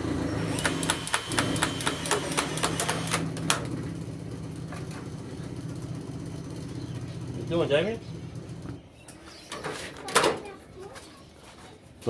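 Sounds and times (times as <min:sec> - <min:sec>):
cutter steady hum: 0:00.0 - 0:04.6
cordless cutter sharp clicks: 0:00.5 - 0:03.2.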